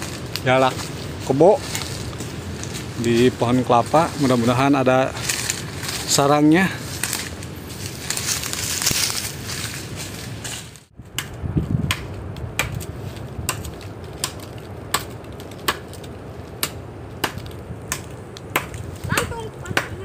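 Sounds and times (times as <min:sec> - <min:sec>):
twigs crunching underfoot: 0:00.0 - 0:20.0
blade chopping into wood: 0:11.1 - 0:16.0.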